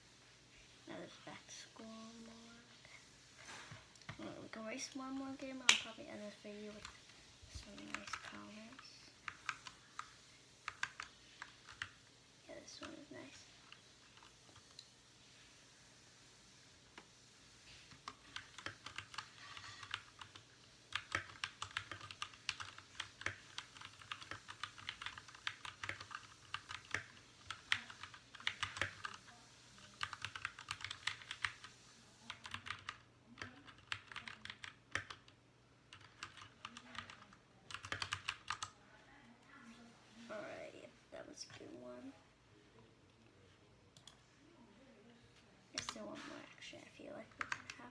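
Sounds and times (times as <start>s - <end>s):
mechanical keyboard typing: 7.6s - 12.0s, 17.9s - 38.8s, 47.3s - 47.9s.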